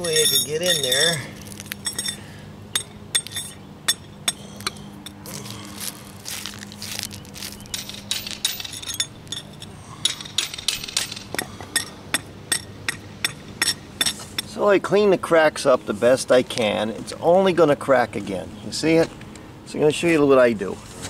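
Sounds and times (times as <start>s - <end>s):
chisel clinking on concrete: 0.0s - 5.2s, 7.6s - 14.5s.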